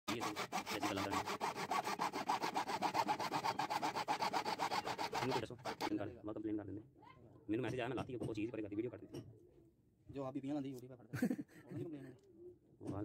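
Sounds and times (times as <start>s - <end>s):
hacksaw cutting plastic pipe: 0.1s - 6.0s.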